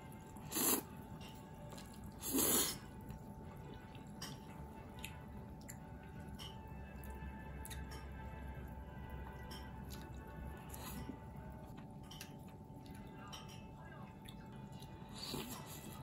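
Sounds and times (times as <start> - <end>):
soft chewing: 0.0 - 16.0
loud slurping of noodles: 0.4 - 0.9, 2.2 - 2.9.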